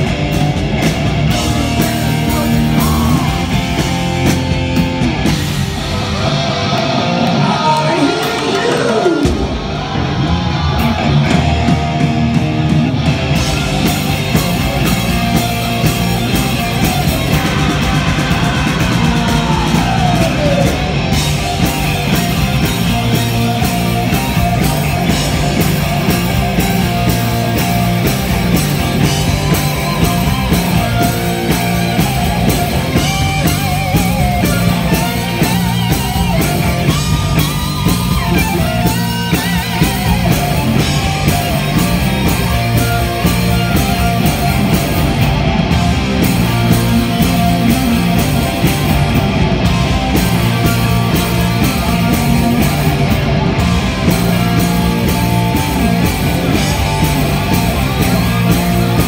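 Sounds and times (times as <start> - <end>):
live rock band playing: 0.0 - 59.0.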